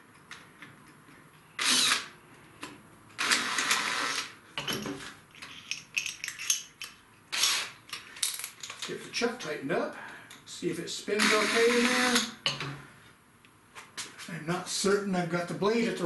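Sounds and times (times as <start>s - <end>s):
drill chuck ratcheting clicks: 1.6s - 2.1s, 3.2s - 4.3s.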